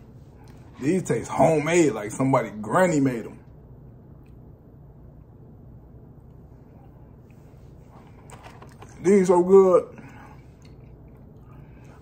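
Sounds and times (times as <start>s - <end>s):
low hum: 0.0s - 12.0s.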